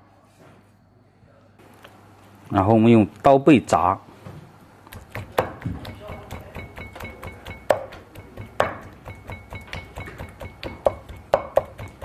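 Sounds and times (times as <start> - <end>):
knife pounding meat on board: 4.9 - 12.0.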